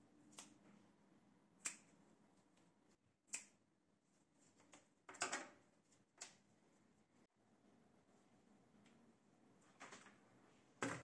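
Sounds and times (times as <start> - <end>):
scissors snipping plastic tubing: 1.6 - 1.9.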